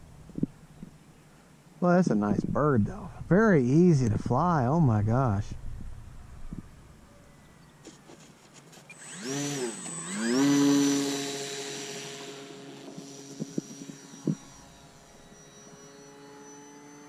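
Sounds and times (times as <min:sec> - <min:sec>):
electric motor and propeller whine: 0:07.8 - 0:17.0.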